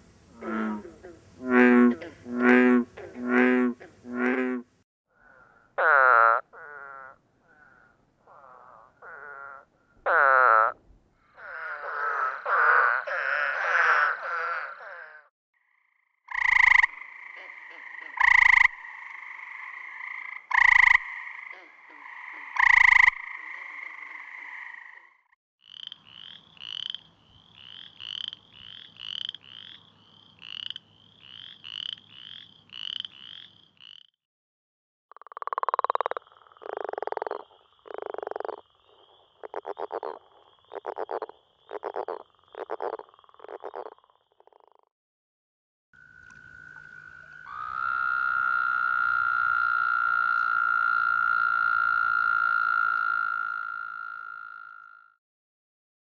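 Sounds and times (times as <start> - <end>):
frog chorus: 5.2 - 34.1, 35.1 - 44.8, 46.0 - 55.2
frog low rattling snore calls: 5.8 - 10.7, 11.3 - 15.3, 16.3 - 25.0
frog rising creaky trills: 5.8 - 15.3, 16.3 - 27.0, 46.0 - 55.2
treefrogs musical trills: 16.3 - 34.1, 35.3 - 44.4, 46.0 - 55.2.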